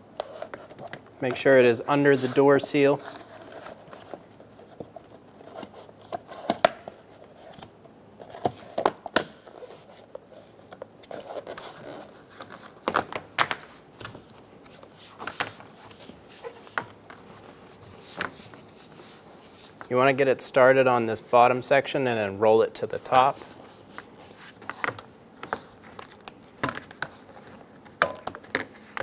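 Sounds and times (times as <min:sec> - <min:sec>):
rubbing and crinkling rubber seal: 0:00.1 - 0:20.0.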